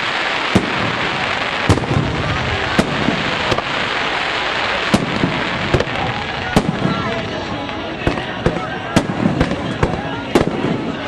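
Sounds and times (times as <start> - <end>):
firework shells bursting: 0.0 - 7.3
steady hiss: 0.0 - 11.0.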